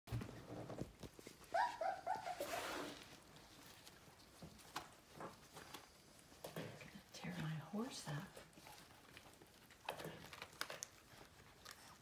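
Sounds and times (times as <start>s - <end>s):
puppy yipping: 1.4s - 3.0s.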